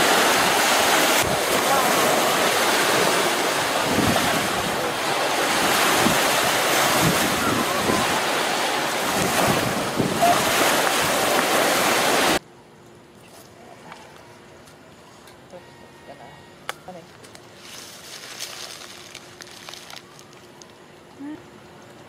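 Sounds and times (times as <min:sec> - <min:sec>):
wind buffeting microphone: 0:00.0 - 0:12.4.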